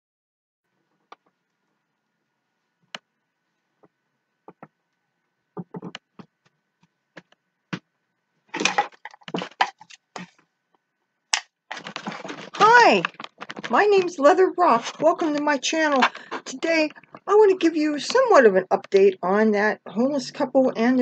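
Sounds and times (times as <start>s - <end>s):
handling clicks and rustling: 8.5s - 17.3s.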